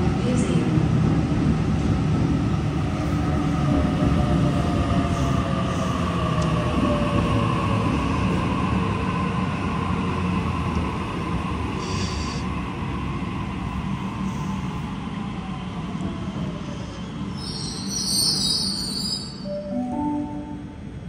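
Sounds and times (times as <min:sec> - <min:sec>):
electric train passing: 0:12.5 - 0:21.0
brief high sound: 0:19.4 - 0:20.8.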